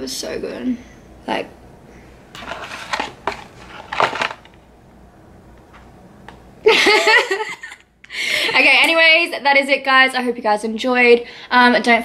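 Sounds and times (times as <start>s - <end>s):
paper bag crinkling: 2.3s - 4.6s
woman's voice: 8.4s - 12.0s.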